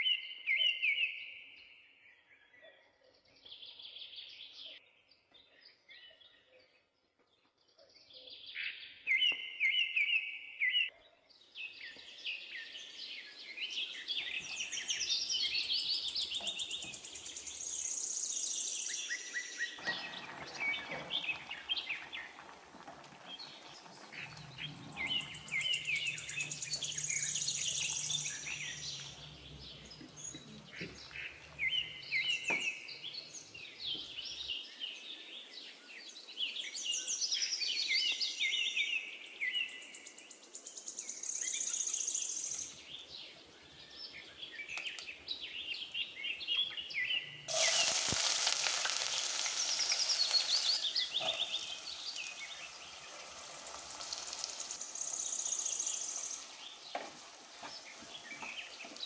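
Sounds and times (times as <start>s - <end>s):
birds chirping: 2.4s - 59.0s
vegetables sizzling in hot pot: 19.8s - 32.4s, 47.5s - 59.0s.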